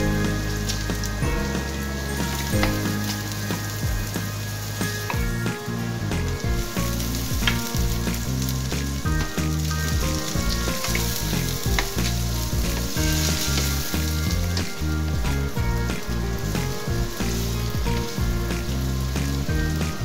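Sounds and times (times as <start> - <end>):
background music with bass line: 0.0 - 20.0
meat sizzling in a pan: 6.0 - 20.0.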